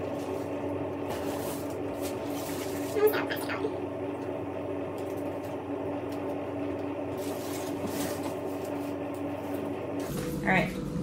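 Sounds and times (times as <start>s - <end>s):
dry roots and paper crackling: 0.0s - 3.5s
steady low hum: 0.0s - 11.0s.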